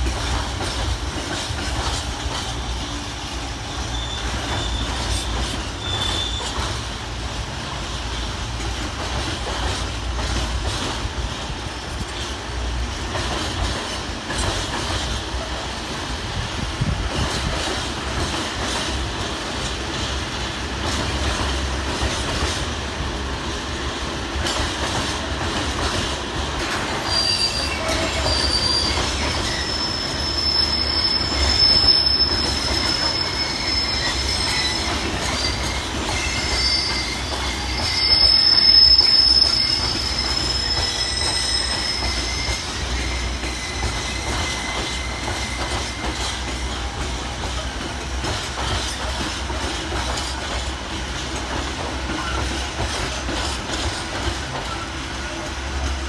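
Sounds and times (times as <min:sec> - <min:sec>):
train wheels squealing: 0:00.0 - 0:07.0, 0:26.6 - 0:56.0
train low rumble: 0:00.0 - 0:56.0.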